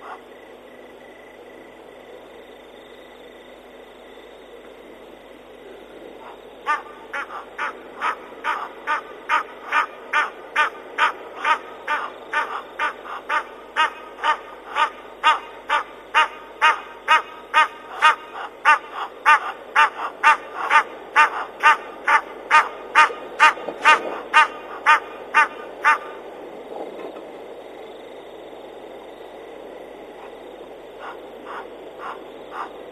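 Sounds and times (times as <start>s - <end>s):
steady hiss: 0.0s - 32.9s
animal calling rhythmically: 6.2s - 26.3s, 30.9s - 32.9s.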